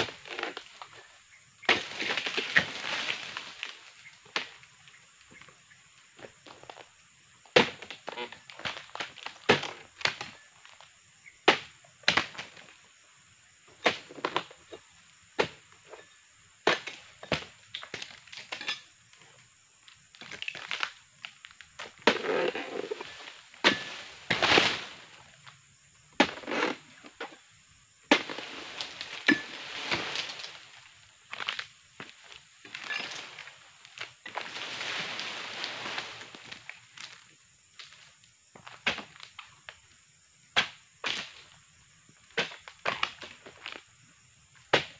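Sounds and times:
palm fronds crashing and dragging: 1.7s - 4.5s, 20.3s - 25.4s, 28.1s - 38.0s
pruning pole chopping palm: 23.6s - 24.9s.

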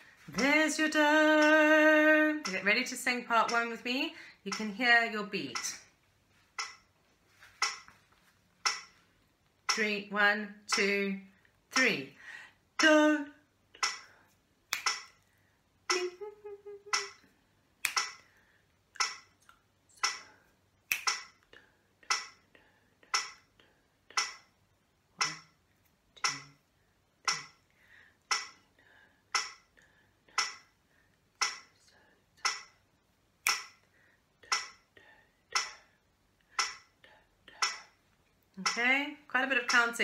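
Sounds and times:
sharp metronome clicks: 2.4s - 3.8s, 4.5s - 4.7s, 5.5s - 5.9s, 6.6s - 6.9s, 7.6s - 7.9s, 8.6s - 9.0s, 9.7s - 9.9s, 10.7s - 11.0s, 12.8s - 13.0s, 13.8s - 14.1s, 14.7s - 15.2s, 15.9s - 16.2s, 16.9s - 17.2s, 17.8s - 18.3s, 19.0s - 19.4s, 20.0s - 20.3s, 20.9s - 21.4s, 22.1s - 22.4s, 23.1s - 23.5s, 24.1s - 24.5s, 25.2s - 25.5s, 26.2s - 26.6s, 27.3s - 27.6s, 28.3s - 28.6s, 29.3s - 29.7s, 30.4s - 30.7s, 31.4s - 31.8s, 32.4s - 32.8s, 33.4s - 33.8s, 34.5s - 34.8s, 35.5s - 35.8s, 36.6s - 36.9s, 37.6s - 37.9s, 38.6s - 38.9s, 39.6s - 40.0s.

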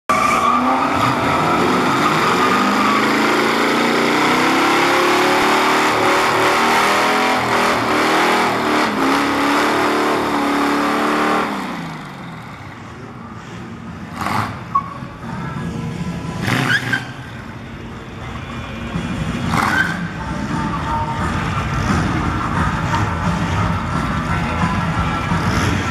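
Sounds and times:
car engine revving hard: 0.1s - 12.2s
tyres spinning and squealing: 0.1s - 12.9s, 14.0s - 15.6s, 16.3s - 17.5s, 19.4s - 20.5s.

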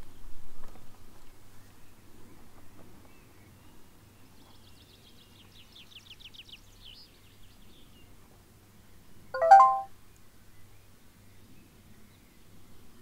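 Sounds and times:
rising electronic chime: 9.4s - 9.9s.

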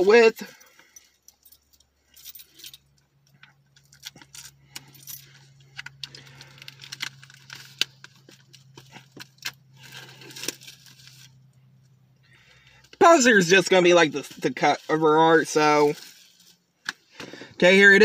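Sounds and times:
low steady hum: 0.0s - 18.0s
keys jangling: 0.6s - 7.0s.

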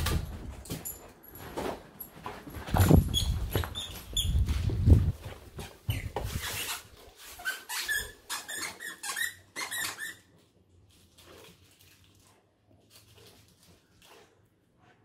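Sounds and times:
dog squeaker toy squeaking: 7.4s - 10.2s.

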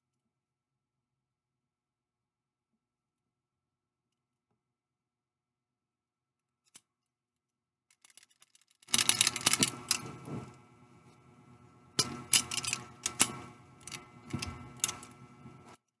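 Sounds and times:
small hard object clicking and rattling: 6.5s - 15.8s.

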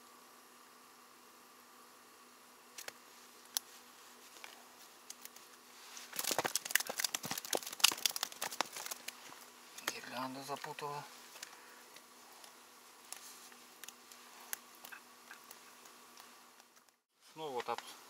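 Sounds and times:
fish flapping in a bucket: 6.1s - 9.2s.

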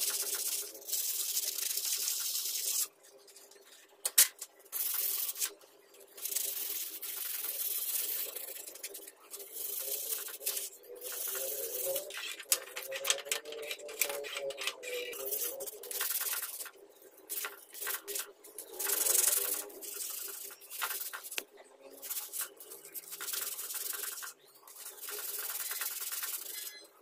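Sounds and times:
sandpaper rasping on metal blade: 0.0s - 2.9s, 4.8s - 5.5s, 6.2s - 8.9s, 9.5s - 12.5s, 13.6s - 16.7s, 17.3s - 18.2s, 18.8s - 21.4s, 22.0s - 26.8s.

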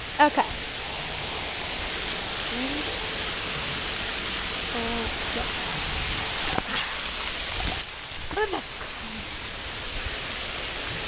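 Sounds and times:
water spraying and pouring: 0.0s - 11.0s.

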